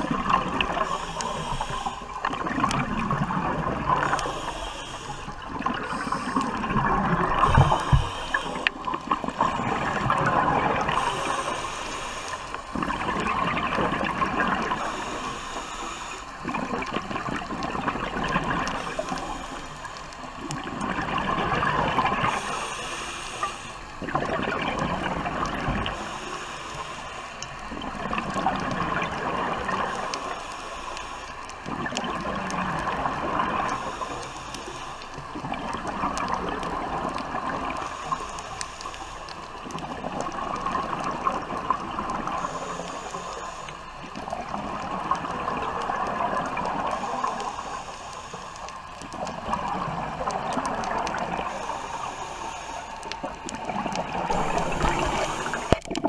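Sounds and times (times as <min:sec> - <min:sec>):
bubbles gurgling underwater: 0:00.0 - 0:15.4, 0:16.4 - 0:19.6, 0:20.3 - 0:23.0, 0:23.9 - 0:26.1, 0:27.4 - 0:30.4, 0:31.6 - 0:34.2, 0:35.2 - 0:38.1, 0:39.4 - 0:43.2, 0:44.0 - 0:47.6, 0:48.9 - 0:52.1, 0:53.0 - 0:56.0
diver breathing through regulator: 0:00.0 - 0:16.8, 0:18.5 - 0:20.3, 0:21.7 - 0:24.3, 0:25.1 - 0:27.6, 0:28.5 - 0:31.6, 0:37.5 - 0:40.7, 0:42.1 - 0:44.9, 0:46.6 - 0:55.9.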